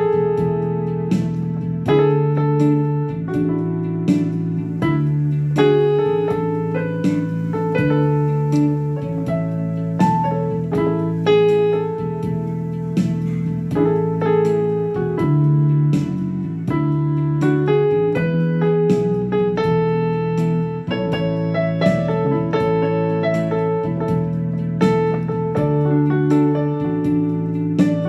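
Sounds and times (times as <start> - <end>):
keyboard music with ringing chords: 0.0 - 28.0.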